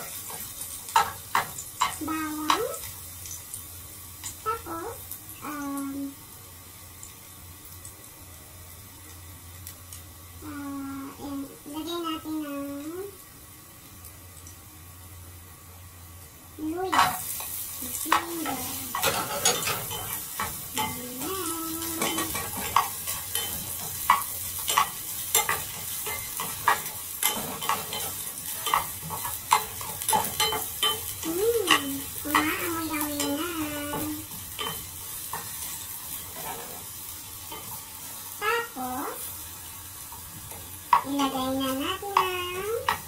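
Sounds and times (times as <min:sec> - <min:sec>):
ginger sizzling in a pot: 0:00.0 - 0:43.0
spatula clacking against pot: 0:21.8 - 0:32.5.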